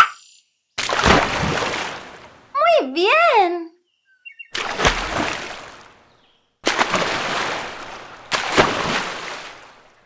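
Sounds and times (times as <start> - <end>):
water splashing: 0.8 - 2.5, 4.5 - 10.0.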